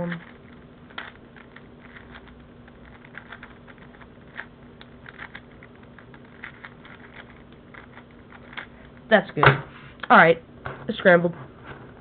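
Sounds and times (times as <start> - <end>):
puzzle cube layers clicking: 0.0 - 8.8.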